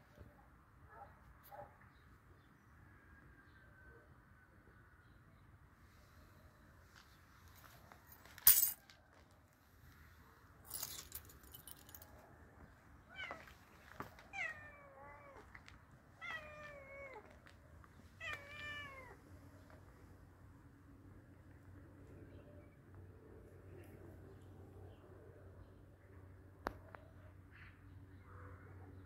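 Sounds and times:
cat meowing: 13.1 - 13.5, 14.3 - 15.5, 16.2 - 17.4, 18.2 - 19.2.

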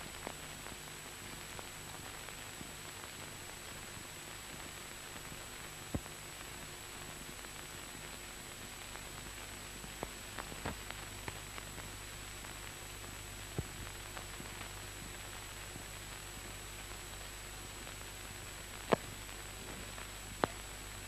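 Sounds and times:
film soundtrack hiss and hum: 0.0 - 21.0
sharp clicks and pops: 18.8 - 20.8.

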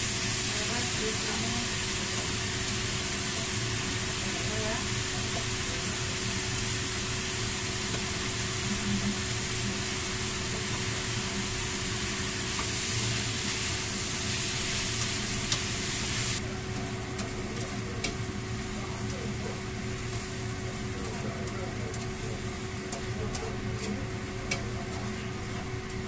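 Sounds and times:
food sizzling in frying pan: 0.0 - 26.0
spatula clicking on pan: 22.8 - 25.1.

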